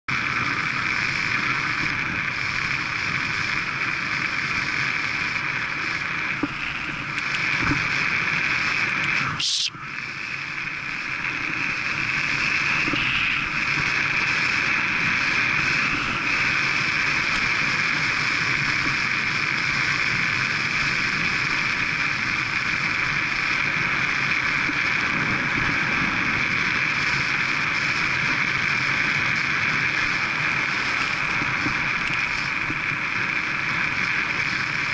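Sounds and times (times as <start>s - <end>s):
road and tyre noise: 0.0s - 34.9s
sharp click: 6.4s - 7.8s.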